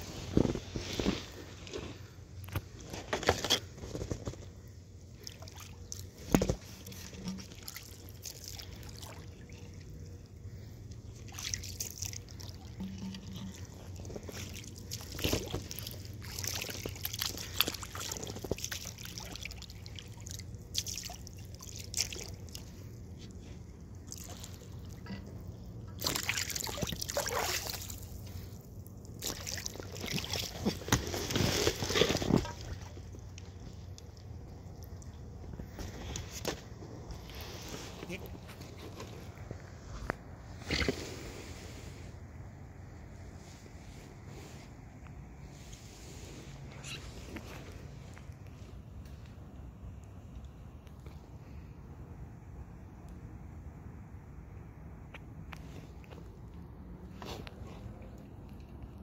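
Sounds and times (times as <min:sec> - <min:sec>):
water splashing against boat: 0:05.2 - 0:39.3.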